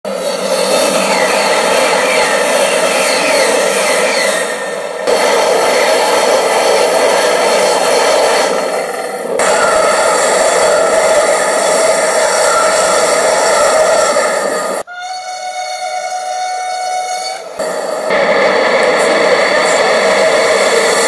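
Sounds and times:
train rushing past: 0.1s - 14.9s, 17.1s - 21.0s.

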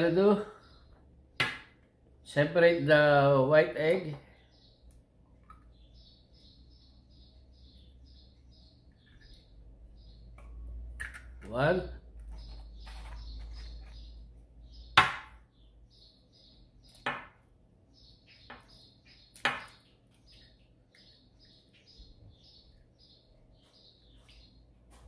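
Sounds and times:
bird chirping: 0.0s - 1.4s, 2.3s - 25.0s
egg cracking against bowl: 10.3s - 11.5s, 18.5s - 20.2s.

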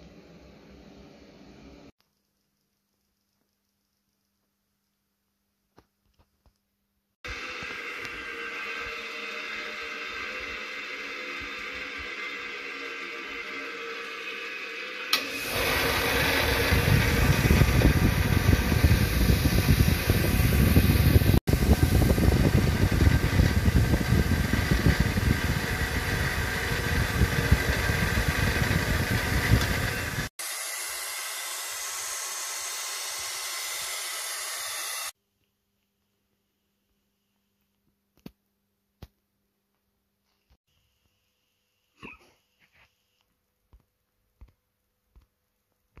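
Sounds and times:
wire wheel grinding metal: 7.3s - 21.4s, 22.1s - 30.4s.

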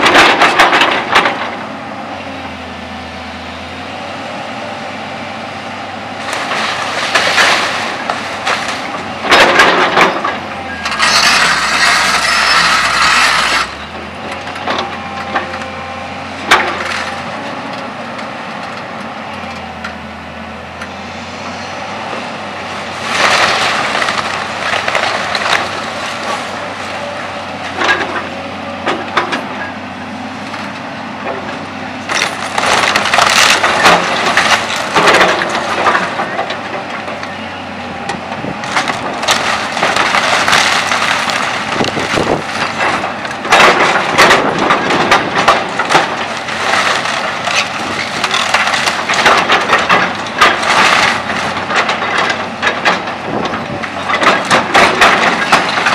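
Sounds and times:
falling debris: 0.0s - 1.6s, 6.2s - 15.5s, 22.9s - 28.2s, 32.0s - 37.3s, 38.4s - 55.9s
timber cracking and splintering: 0.0s - 1.6s, 6.2s - 15.8s, 16.4s - 18.9s, 22.8s - 29.6s, 30.4s - 37.3s, 38.0s - 55.9s
excavator diesel engine running: 0.0s - 55.9s.

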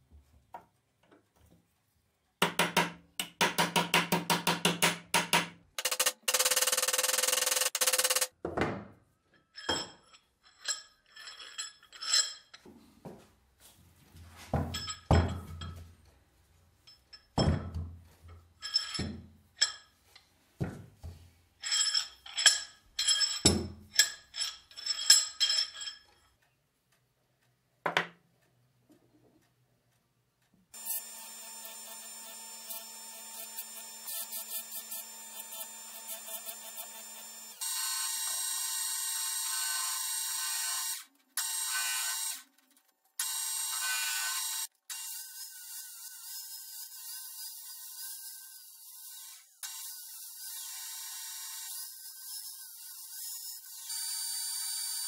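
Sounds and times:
spinning bench machine wheel: 5.8s - 8.3s
metal parts clinking: 9.3s - 12.6s, 21.6s - 26.2s.

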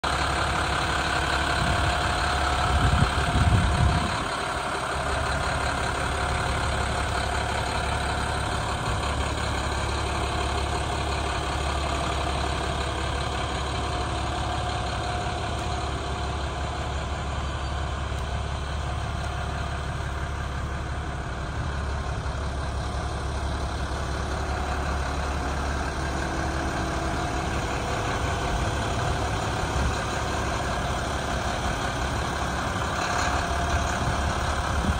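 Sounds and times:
diesel engine idling: 0.0s - 34.9s.

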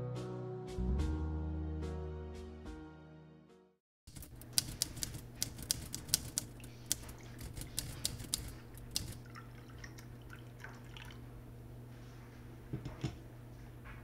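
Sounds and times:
typewriter keys clacking: 4.1s - 9.2s
coffee pouring into a mug: 9.1s - 11.2s.

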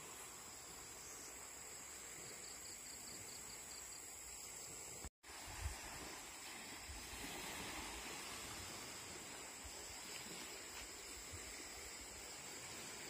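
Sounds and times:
high insect trill: 0.0s - 5.1s
breeze hiss: 0.0s - 13.0s
gentle surf: 0.0s - 13.0s.

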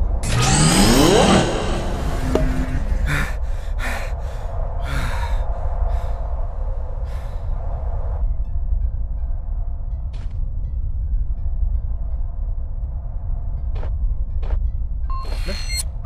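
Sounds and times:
low rumble: 0.0s - 16.0s
short gasping breaths: 3.0s - 6.2s.

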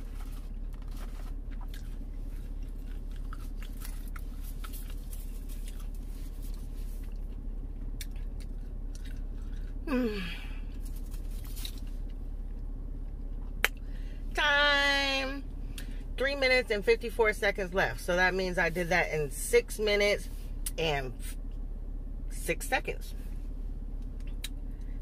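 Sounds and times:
person chewing with mouth smacks: 0.0s - 9.9s
person humming: 9.9s - 10.5s.

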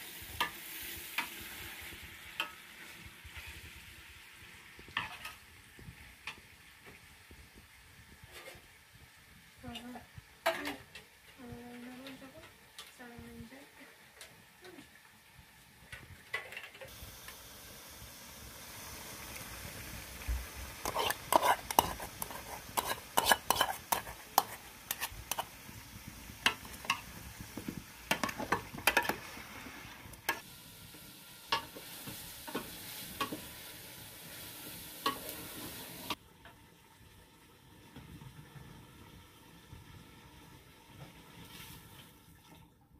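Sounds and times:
meat sizzling in a pot: 0.0s - 42.0s
metal ladle clinking against pot: 20.8s - 25.4s.

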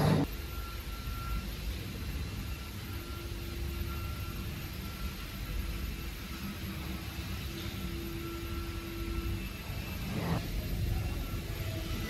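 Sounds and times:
cnc router running: 0.0s - 12.0s.

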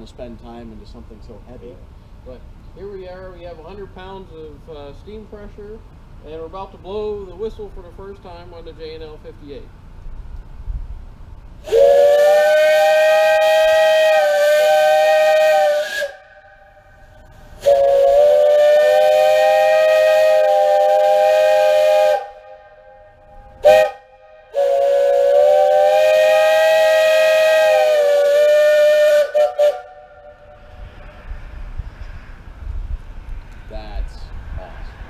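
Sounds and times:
steam locomotive whistle blasts: 11.6s - 30.8s.

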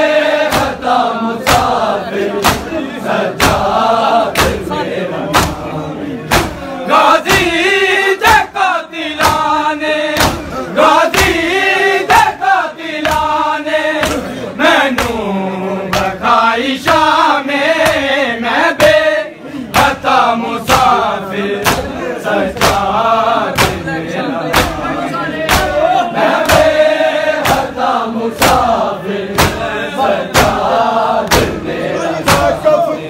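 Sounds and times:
men chanting: 0.0s - 33.0s
rhythmic chest-beating slaps: 0.0s - 33.0s.

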